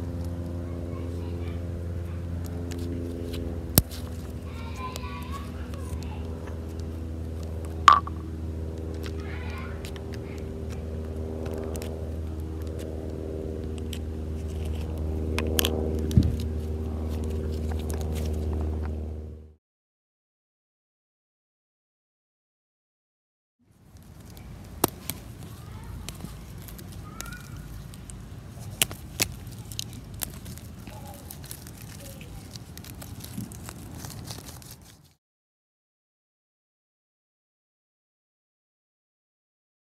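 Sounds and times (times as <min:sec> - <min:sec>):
low mechanical hum: 0:00.0 - 0:19.6, 0:23.7 - 0:35.2
low outdoor rumble: 0:00.0 - 0:19.6, 0:23.7 - 0:35.2
object crackling under fingers: 0:23.9 - 0:35.2
plastic pieces clicking: 0:24.2 - 0:34.9.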